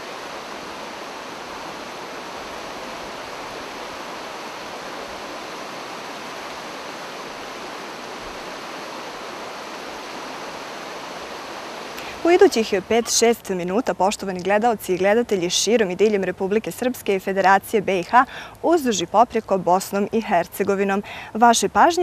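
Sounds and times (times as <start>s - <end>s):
river rapids rushing: 0.0s - 13.7s.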